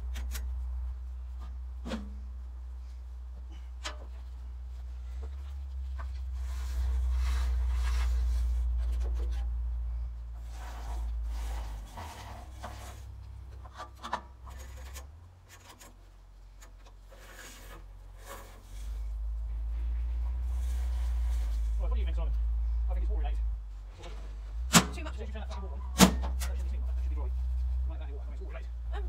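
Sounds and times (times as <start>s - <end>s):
rubbing and scraping: 0.0s - 22.2s
low steady rumble: 0.0s - 29.0s.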